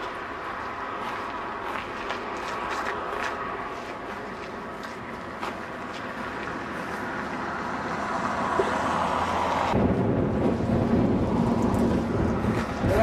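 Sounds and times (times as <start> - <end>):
road traffic rumble: 0.0 - 13.0
wind on microphone: 9.7 - 13.0.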